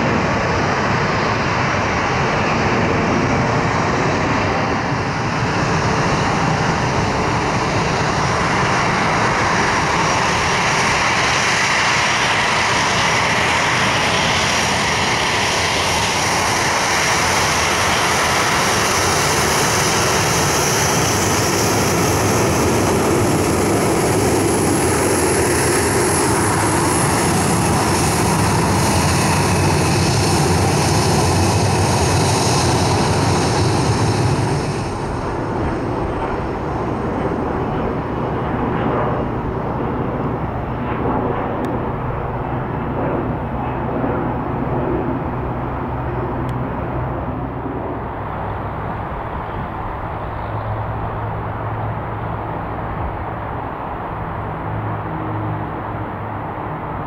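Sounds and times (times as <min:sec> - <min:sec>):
distant jet rumble: 0:00.0 - 0:57.0
jet engines whining: 0:00.0 - 0:57.0.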